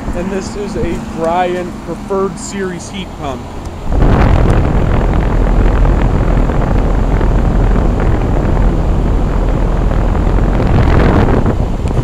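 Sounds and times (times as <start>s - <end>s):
air buffeting microphone: 0.0s - 12.0s
condenser fan air rush: 0.0s - 12.0s.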